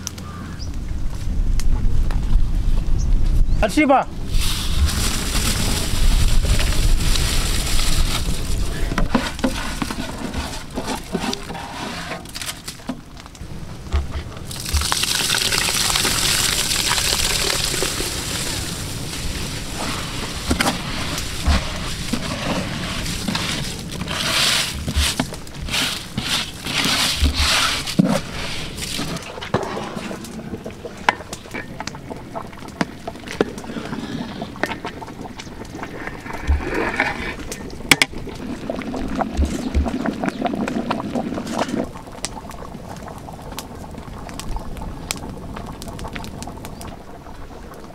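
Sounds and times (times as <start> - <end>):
water splashing and bubbling: 13.9 - 47.9.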